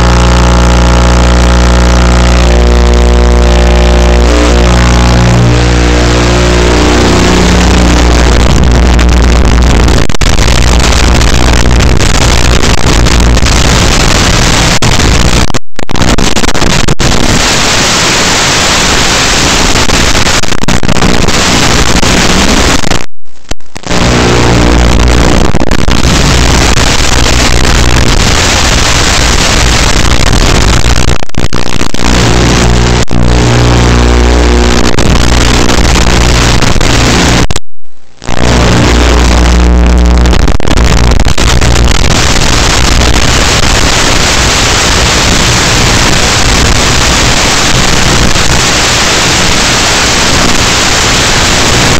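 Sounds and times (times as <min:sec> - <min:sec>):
distorted vehicle motor running: 0:00.0 - 0:15.4, 0:23.8 - 0:28.6, 0:32.0 - 0:37.5.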